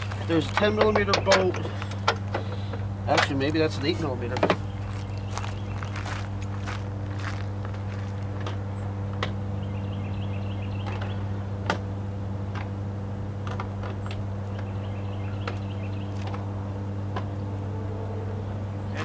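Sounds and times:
feet crunching on gravel: 0.0 - 0.9, 4.6 - 8.7
low hum: 0.0 - 19.0.

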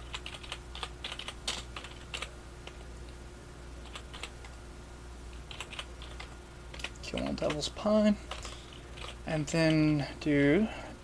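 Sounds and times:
computer keyboard typing: 0.0 - 2.8, 3.8 - 4.6, 5.3 - 7.7, 8.3 - 9.8.

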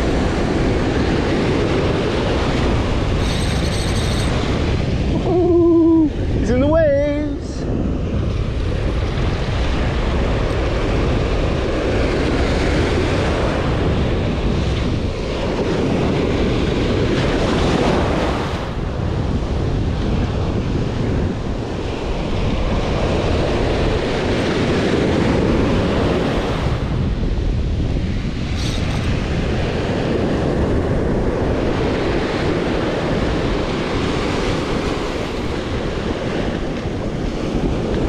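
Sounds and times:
ocean surf breaking: 0.0 - 38.0
wind buffeting microphone: 0.0 - 38.0.

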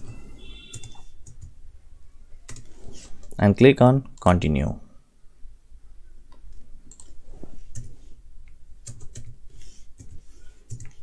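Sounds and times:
computer keyboard typing: 0.0 - 1.6, 2.5 - 3.4, 6.9 - 8.0, 8.8 - 11.0.

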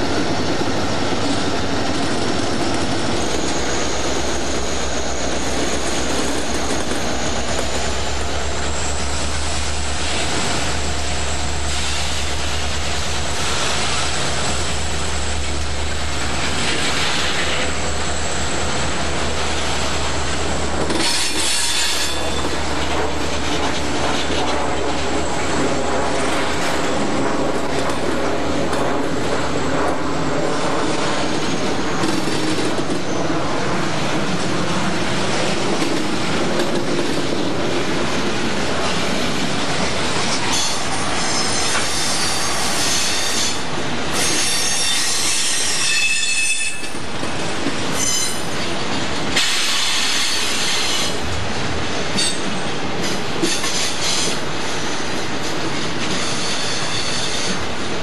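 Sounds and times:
freight train cars rolling past: 0.0 - 58.0
steel wheel squeal: 2.5 - 12.3, 21.0 - 22.6, 40.4 - 47.0, 47.9 - 48.7, 56.1 - 57.6.

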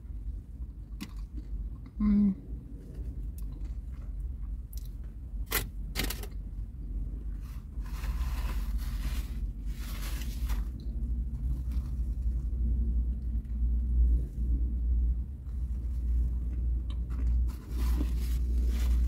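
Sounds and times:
low rumble: 0.0 - 19.0
person chewing: 3.3 - 5.1, 15.5 - 19.0.

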